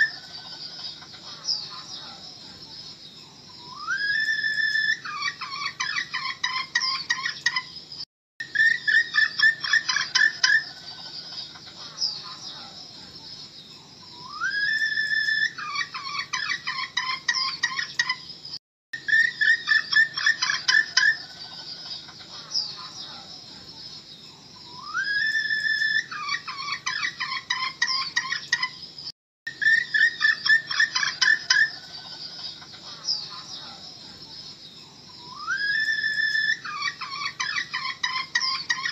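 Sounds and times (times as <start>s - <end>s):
hen clucking and calling: 0.0s - 2.2s, 3.6s - 7.7s, 8.4s - 12.8s, 14.2s - 18.2s, 19.0s - 23.3s, 24.7s - 28.8s, 29.5s - 33.8s, 35.2s - 38.9s
high chirps: 13.4s - 38.9s.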